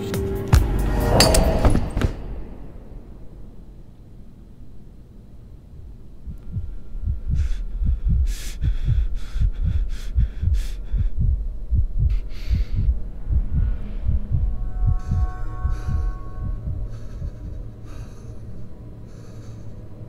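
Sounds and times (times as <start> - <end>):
deep heartbeat-like thumps: 6.2 - 18.2.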